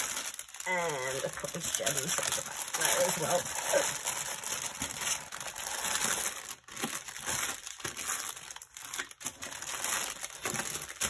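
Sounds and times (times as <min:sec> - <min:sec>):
plastic bags crinkling: 0:00.0 - 0:11.0.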